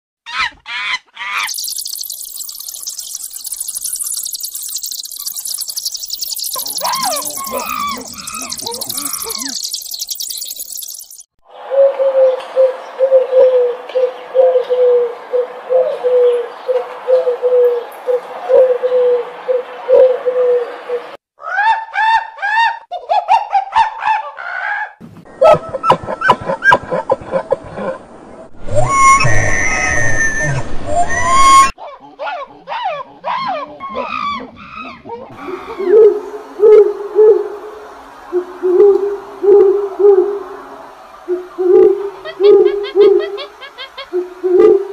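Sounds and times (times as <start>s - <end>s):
high arched animal calls: 0.3s - 11.3s, 28.7s - 44.9s
short high chirps: 1.4s - 11.3s
steady low hum: 35.4s - 44.9s.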